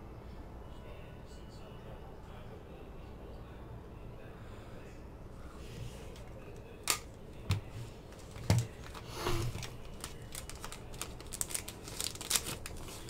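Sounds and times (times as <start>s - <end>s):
plastic card sleeve rustle: 8.0s - 13.0s.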